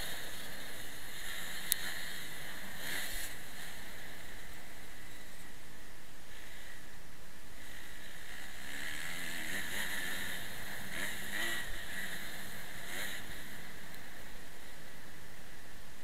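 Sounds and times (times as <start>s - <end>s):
motocross engine revving: 0.0s - 5.3s, 7.6s - 15.0s.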